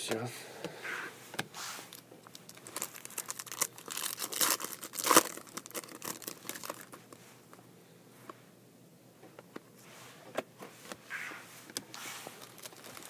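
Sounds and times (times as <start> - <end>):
foil wrapper crinkling and tearing: 1.9 - 7.1, 12.4 - 13.0.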